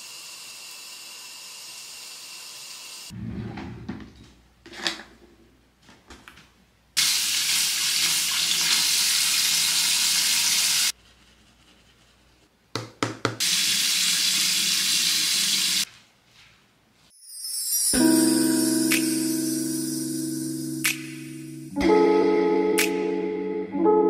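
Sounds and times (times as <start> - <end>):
tap water running into sink: 7.0 - 10.9.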